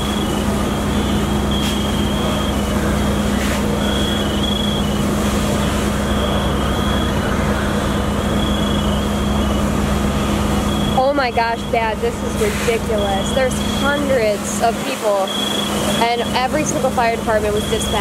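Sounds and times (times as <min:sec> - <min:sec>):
engines droning: 0:00.0 - 0:18.0
high-pitched electronic beeps: 0:15.2 - 0:16.8.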